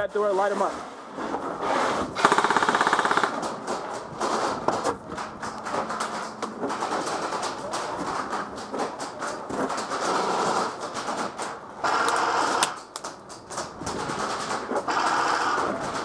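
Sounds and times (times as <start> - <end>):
airsoft rifles firing full auto: 2.2 - 4.8, 5.4 - 16.0.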